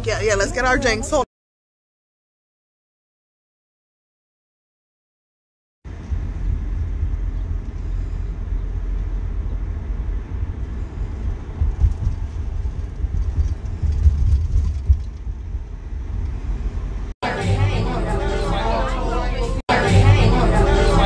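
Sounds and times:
car engine and tyre rumble: 0:05.9 - 0:17.2.

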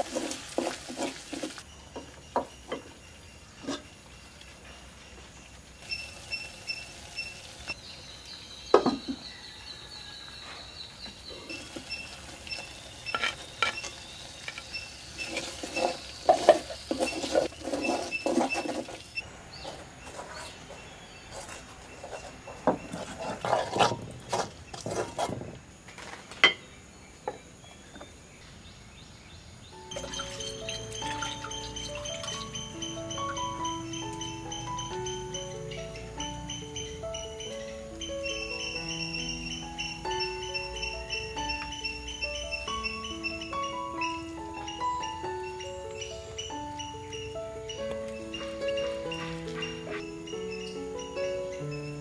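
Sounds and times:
spoon scraping metal pan: 0:12.6 - 0:19.2
music: 0:29.8 - 0:52.0.

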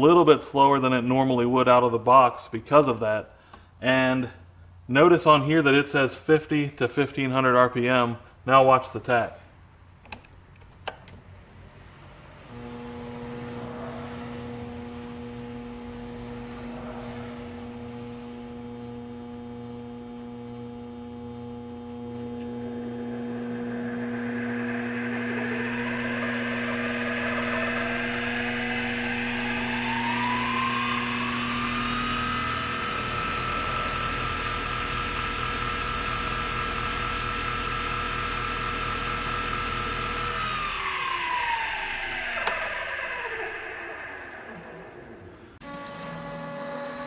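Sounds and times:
lathe motor whine: 0:12.5 - 0:47.0.

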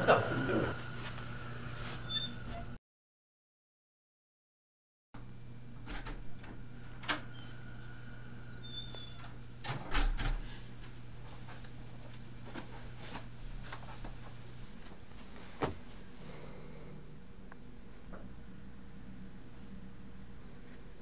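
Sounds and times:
steady low hum: 0:00.0 - 0:02.8, 0:05.2 - 0:21.0
door latching shut with a thud: 0:09.6 - 0:10.4.

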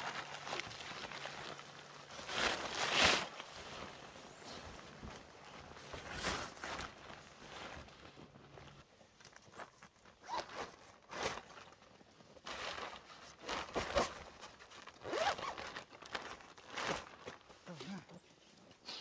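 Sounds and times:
zipper being pulled: 0:10.2 - 0:11.5, 0:15.0 - 0:15.8.

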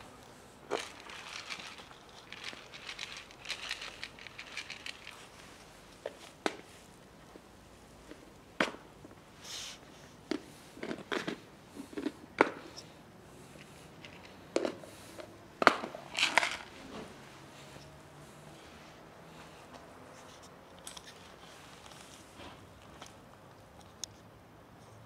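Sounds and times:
cat chewing crunchy food: 0:00.0 - 0:05.7, 0:10.2 - 0:12.7.

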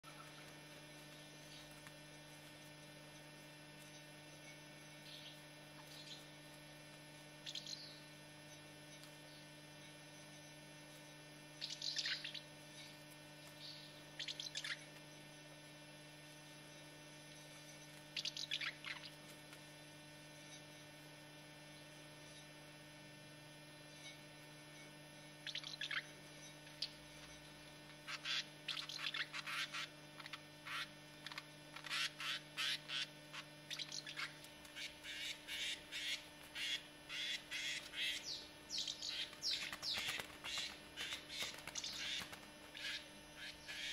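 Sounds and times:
low electrical hum: 0:00.0 - 0:43.9
birds rasping chirrups: 0:07.4 - 0:10.6, 0:11.6 - 0:15.3, 0:16.6 - 0:19.3, 0:23.9 - 0:43.9.

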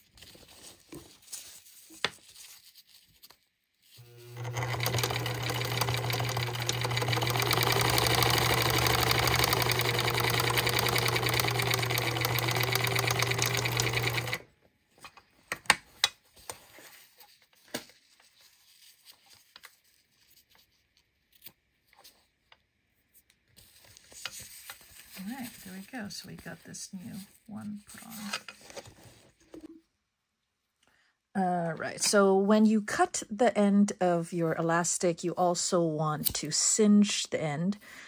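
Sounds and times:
sewing machine stitching: 0:04.0 - 0:14.4.

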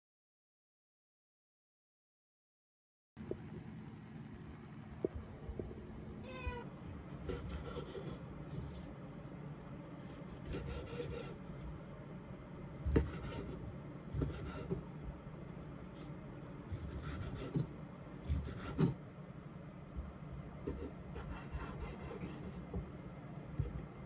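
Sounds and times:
cat meowing: 0:06.2 - 0:06.7
knife chopping on wooden board: 0:12.8 - 0:14.8.

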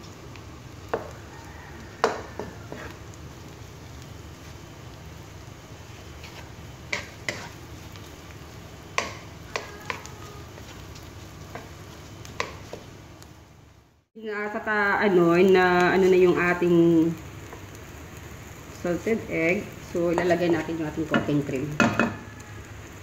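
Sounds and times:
faint sizzle: 0:00.0 - 0:23.0
wooden spatula scraping a wok: 0:00.9 - 0:03.1, 0:05.8 - 0:12.9
spatula knocking against pan: 0:02.0 - 0:02.5, 0:09.0 - 0:10.0.

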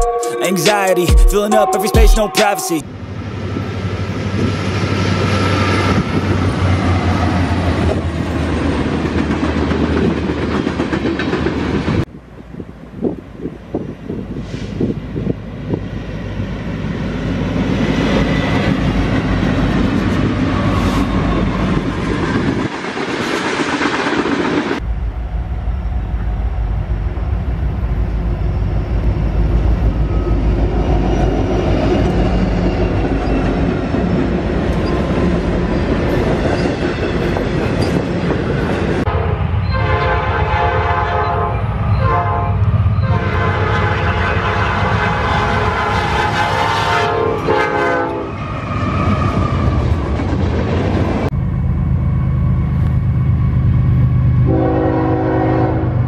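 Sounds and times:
locomotive horn chord: 0:00.0 - 0:02.8, 0:39.1 - 0:48.3, 0:54.5 - 0:56.0
diesel locomotive engines rumbling: 0:00.0 - 0:56.0.

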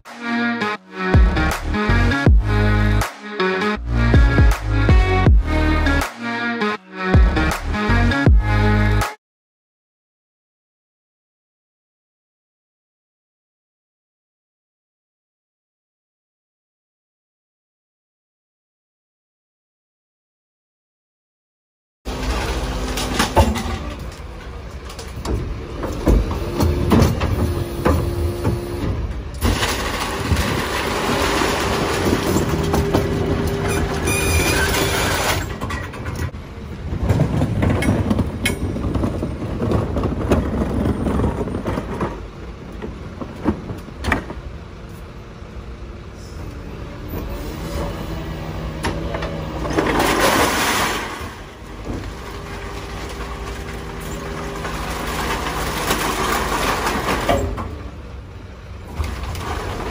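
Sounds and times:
garbage truck engine revving: 0:22.1 - 0:59.9.

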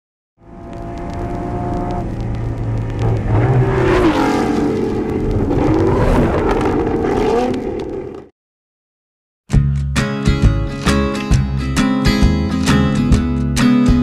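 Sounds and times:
car engine revving: 0:00.4 - 0:08.3.

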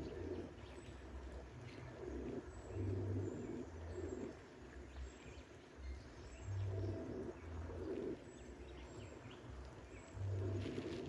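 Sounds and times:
dove cooing: 0:00.0 - 0:00.6.

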